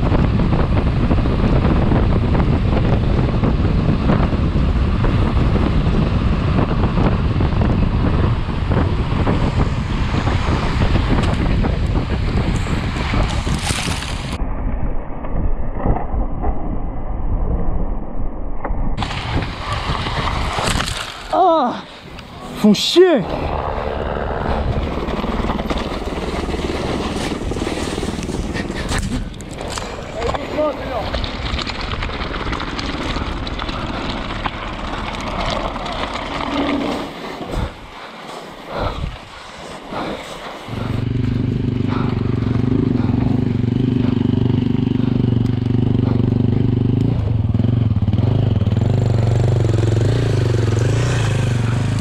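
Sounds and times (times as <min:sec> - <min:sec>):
wind buffeting microphone: 0:00.0 - 0:18.0, 0:19.0 - 0:52.0
bike tyres rattling on rock: 0:00.4 - 0:14.4, 0:19.0 - 0:21.5, 0:24.8 - 0:38.4
tyres hissing on snow: 0:37.0 - 0:40.8.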